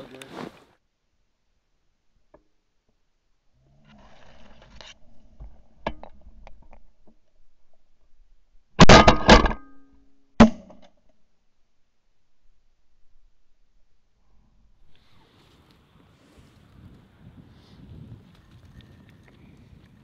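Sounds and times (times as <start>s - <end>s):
rustling: 0.0s - 0.8s.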